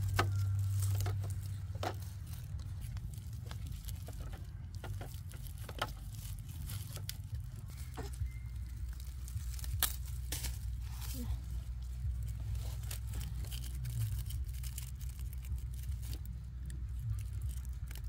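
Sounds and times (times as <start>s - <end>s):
sugarcane stalks knocking: 0.0s - 11.2s
dry leaves crackling: 0.0s - 18.0s
steady low rumble: 0.0s - 18.0s.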